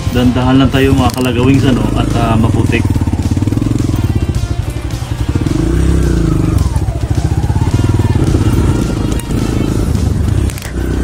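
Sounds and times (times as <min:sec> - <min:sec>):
small motorcycle engine revving: 0:05.0 - 0:11.0.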